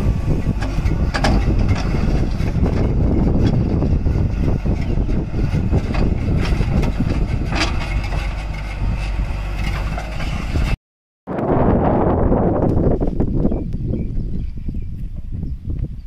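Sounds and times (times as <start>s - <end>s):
diesel engine running: 0.0s - 10.8s.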